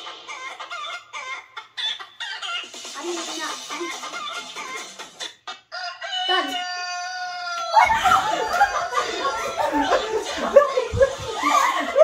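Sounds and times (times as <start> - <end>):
chicken clucking: 0.0 - 12.0
rooster crowing: 5.7 - 10.6
loud laughter: 7.3 - 12.0.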